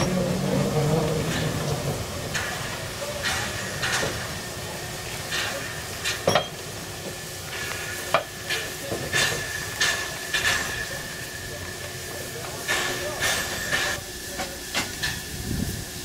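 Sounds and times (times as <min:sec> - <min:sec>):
steady steam hiss: 0:00.0 - 0:16.0
steam locomotive chuffing: 0:00.0 - 0:16.0
sharp metallic clanks: 0:05.3 - 0:06.7, 0:08.1 - 0:11.0.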